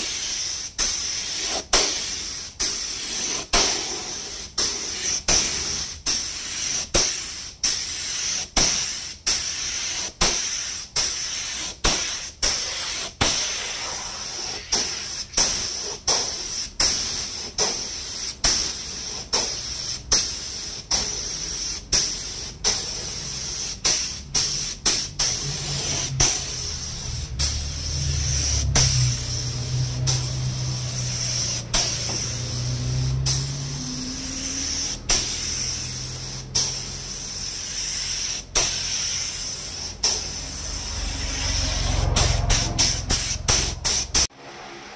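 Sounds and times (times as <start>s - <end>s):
spray gun hissing: 0.0s - 44.3s.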